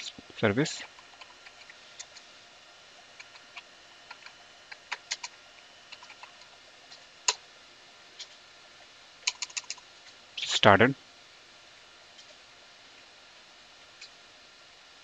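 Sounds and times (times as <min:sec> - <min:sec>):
keyboard keystrokes: 0:09.3 - 0:09.8.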